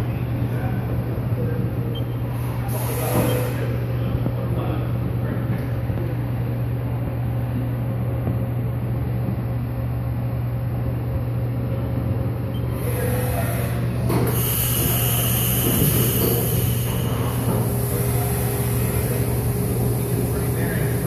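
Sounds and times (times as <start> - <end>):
milling machine humming: 0.0 - 5.2, 11.8 - 21.0
coolant spray hissing: 2.4 - 3.7, 14.3 - 21.0.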